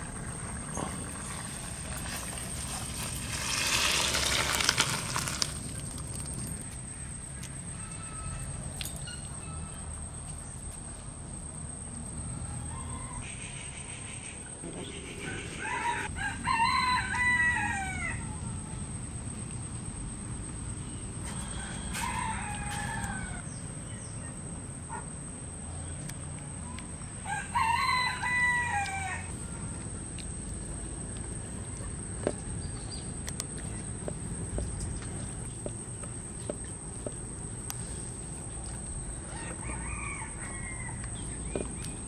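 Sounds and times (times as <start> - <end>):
rooster crowing: 6.9 - 8.6, 12.4 - 13.3, 15.2 - 18.8, 21.2 - 23.4, 27.2 - 29.8, 39.2 - 41.4.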